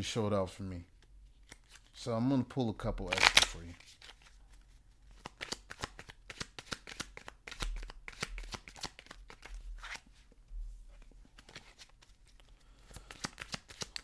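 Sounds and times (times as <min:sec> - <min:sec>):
cards being shuffled: 0:01.3 - 0:02.0, 0:03.0 - 0:10.1, 0:11.0 - 0:14.0.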